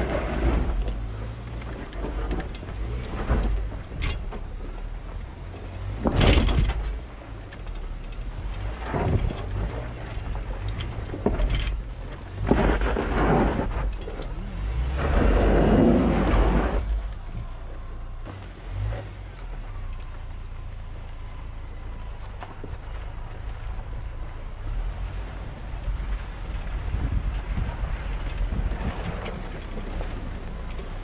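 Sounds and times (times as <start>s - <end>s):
pickup truck driving on dirt trail: 0.0s - 31.0s.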